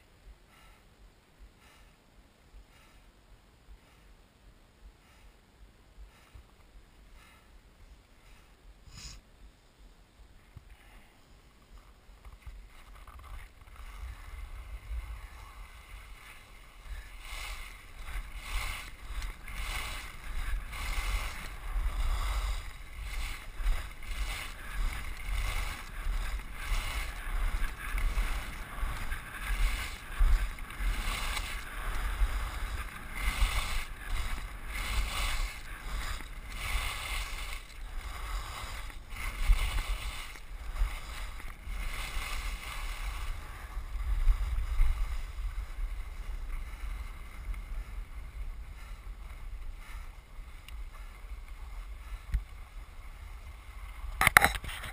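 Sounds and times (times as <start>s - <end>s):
ski edges scraping on snow: 10.8s - 54.9s
wind on microphone: 11.8s - 54.9s.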